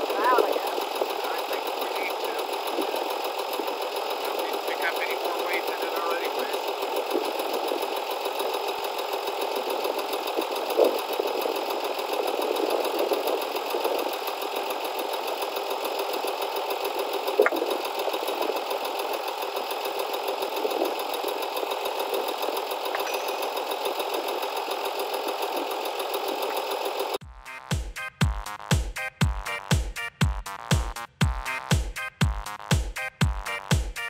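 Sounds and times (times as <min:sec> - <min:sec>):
tractor engine idling: 0:00.0 - 0:27.2.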